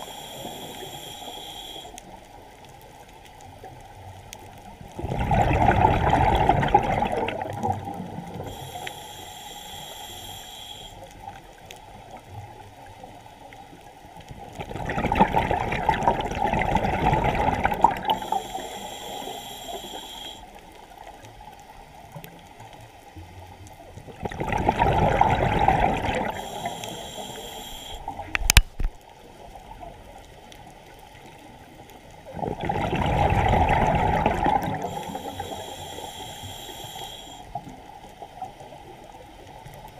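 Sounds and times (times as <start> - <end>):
regulator hiss: 0.0 - 2.4, 8.4 - 11.4, 17.9 - 20.6, 26.2 - 28.2, 34.7 - 37.8
bubbles from diver exhaling: 5.0 - 8.1, 14.6 - 18.2, 24.1 - 26.4, 32.3 - 35.0.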